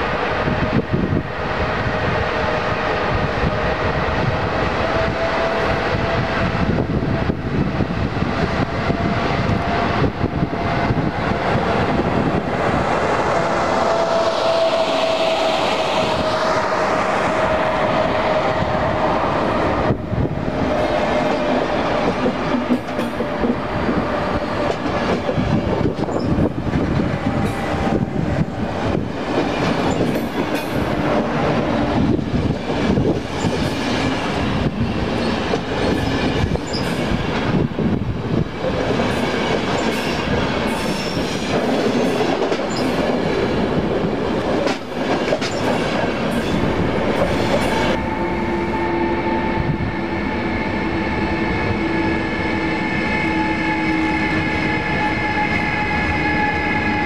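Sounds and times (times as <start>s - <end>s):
electric locomotive passing: 0.0s - 57.0s
train coaches rolling on track: 0.0s - 57.0s
steady tone: 47.9s - 56.6s.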